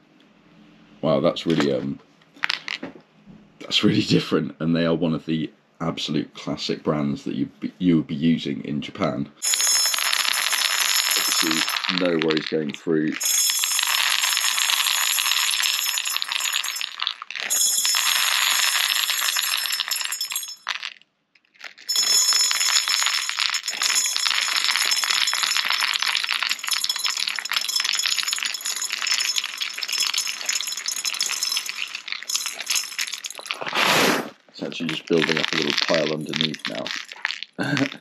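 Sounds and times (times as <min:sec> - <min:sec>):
plastic pellets rattling in metal gauge: 0:09.4 - 0:33.7, 0:34.8 - 0:38.0.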